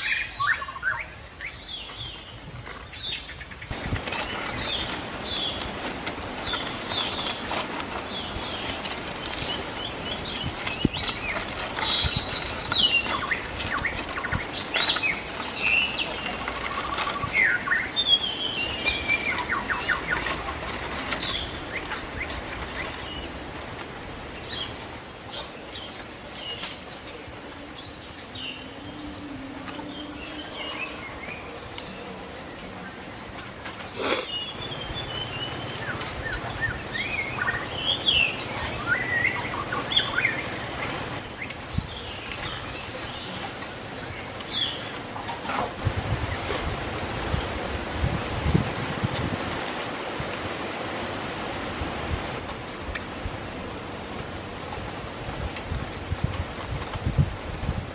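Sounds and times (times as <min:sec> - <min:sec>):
small birds chirping: 0:00.0 - 0:49.2
aluminium foil crinkling: 0:03.7 - 0:23.0.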